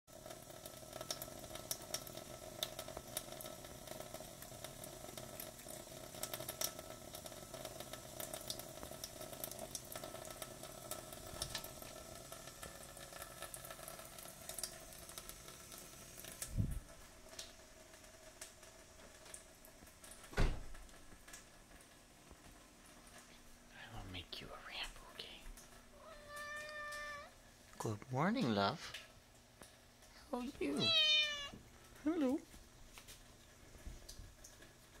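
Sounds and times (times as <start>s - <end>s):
tap water running into metal sink: 0.1s - 23.2s
cat landing with dull thumps: 20.3s - 20.8s.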